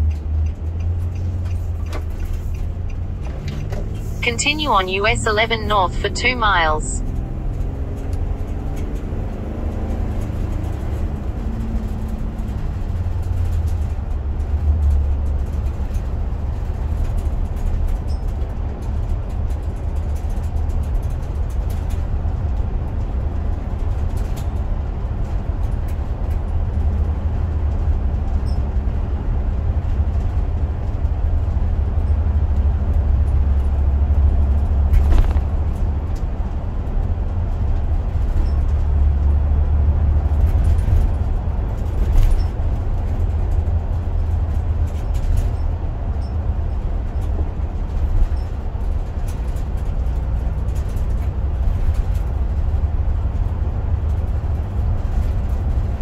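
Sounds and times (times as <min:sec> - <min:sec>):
car cabin rumble: 0:33.2 - 0:36.6.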